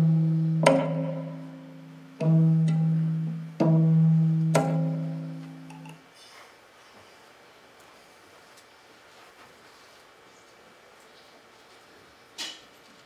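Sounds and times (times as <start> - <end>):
low zither string notes ringing: 0.0 - 6.0.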